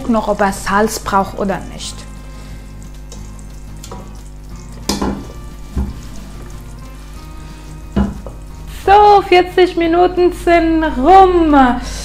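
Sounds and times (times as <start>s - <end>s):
low sizzle: 0.0s - 12.0s
spoon stirring in a pot: 2.0s - 8.7s
metal knocks against a pot: 4.8s - 6.1s, 8.0s - 8.4s.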